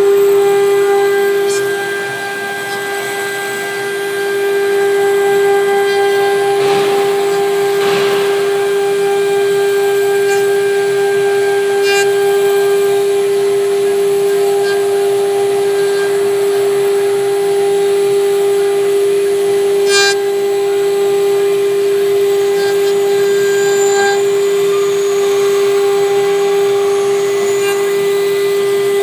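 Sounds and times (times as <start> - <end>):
router bit carving wood: 0.0 - 29.0
router spindle whining: 0.0 - 29.0.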